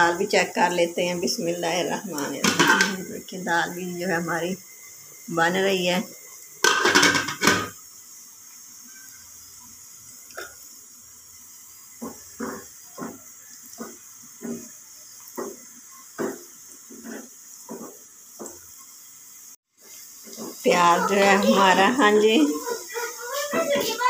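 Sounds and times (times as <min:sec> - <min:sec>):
onions sizzling in pan: 0:00.0 - 0:24.0
wooden spoon scraping pan: 0:12.0 - 0:15.7, 0:16.3 - 0:18.1, 0:19.8 - 0:21.8.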